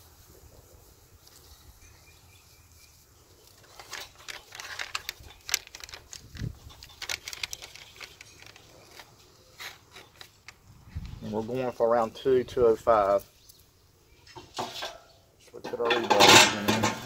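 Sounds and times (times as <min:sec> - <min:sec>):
paper crinkling and rustling: 0:03.4 - 0:11.6.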